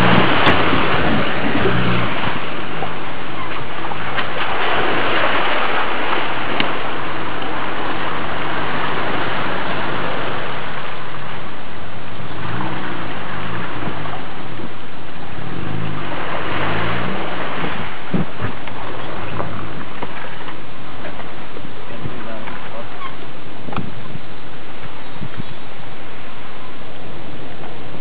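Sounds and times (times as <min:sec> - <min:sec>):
off-road engine revving: 0:00.0 - 0:06.7, 0:07.6 - 0:20.4
water and mud splashing: 0:00.0 - 0:28.0.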